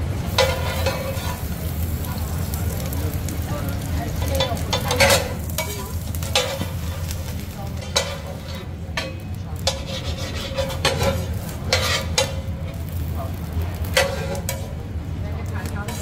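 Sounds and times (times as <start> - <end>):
bread sizzling: 0.0 - 16.0
metal spatula scraping griddle: 0.3 - 1.8, 4.1 - 14.8.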